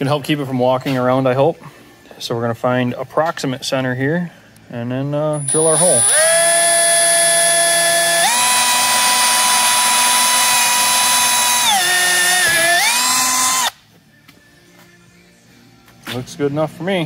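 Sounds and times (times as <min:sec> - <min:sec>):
cordless drill whine: 0:05.4 - 0:13.8.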